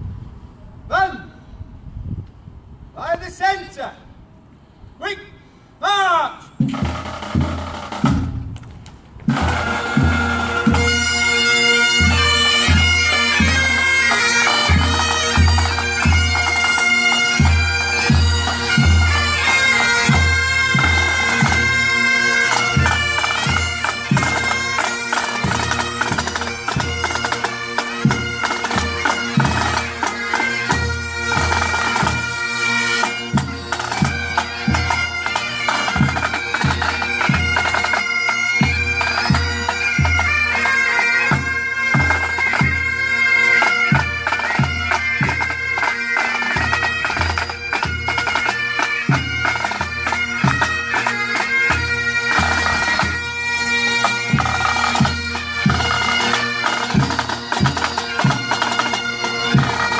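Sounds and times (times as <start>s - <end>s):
drums beating: 6.4s - 8.6s, 9.2s - 11.0s, 11.9s - 32.3s, 38.6s - 40.6s, 54.2s - 59.9s
bagpipes playing over drone: 9.3s - 59.9s.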